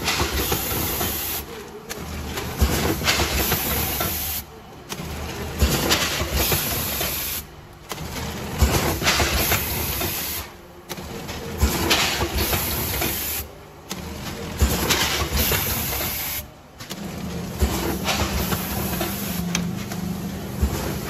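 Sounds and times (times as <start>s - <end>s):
machine hissing: 0.0s - 1.5s, 2.6s - 4.4s, 5.6s - 7.5s, 8.6s - 10.6s, 11.7s - 13.5s, 14.6s - 16.5s, 17.6s - 19.5s
packaging machine running: 0.0s - 21.0s.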